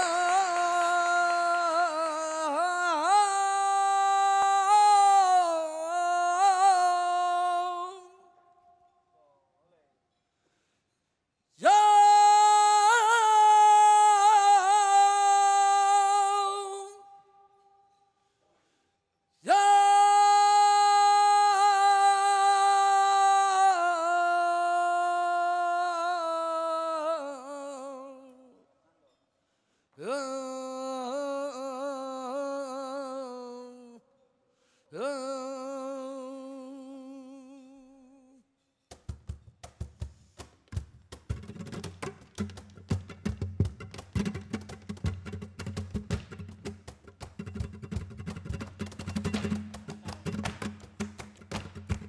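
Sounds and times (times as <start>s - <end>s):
person singing a held vowel: 0.0s - 9.0s, 11.6s - 18.0s, 19.4s - 28.7s, 30.0s - 34.1s, 34.9s - 38.4s.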